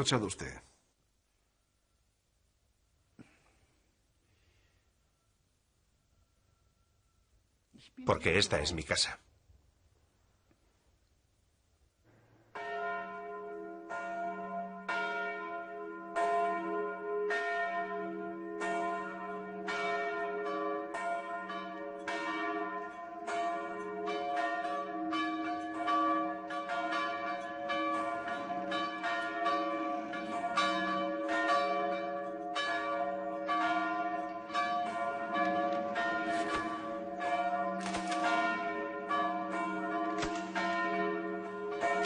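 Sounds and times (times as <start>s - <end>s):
church bells pealing: 12.5s - 42.0s.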